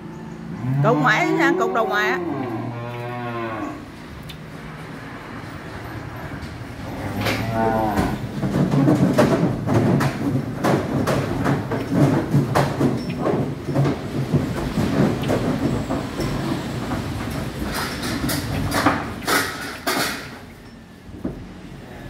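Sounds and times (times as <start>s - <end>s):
cattle hooves on wooden floor: 4.7s - 21.7s.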